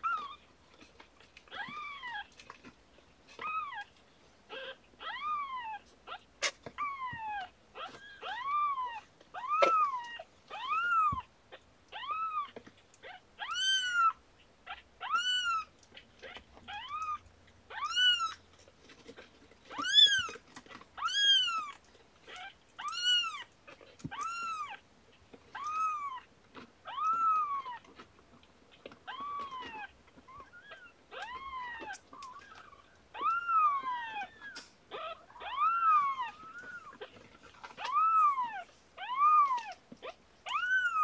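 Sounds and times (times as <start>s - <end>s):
kitten meowing: 6.8s - 11.3s, 11.9s - 18.4s, 19.7s - 20.4s, 21.0s - 23.5s, 24.1s - 24.8s, 26.9s - 27.8s, 29.1s - 37.1s, 37.8s - 41.0s.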